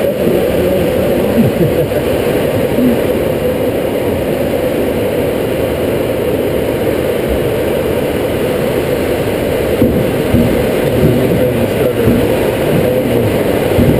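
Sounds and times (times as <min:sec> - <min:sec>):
air rushing over glider canopy: 0:00.0 - 0:13.9.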